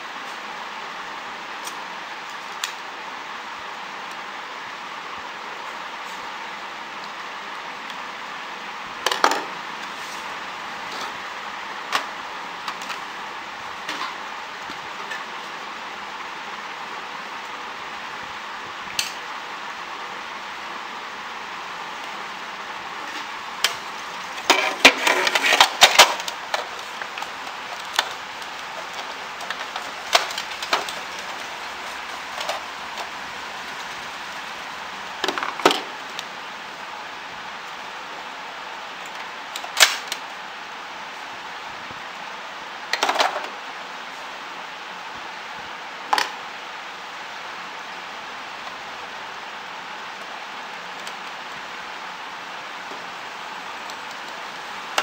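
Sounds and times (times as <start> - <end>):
steady hiss: 0.0 - 55.0
plastic parts clicking and knocking: 9.0 - 9.5, 24.4 - 33.2.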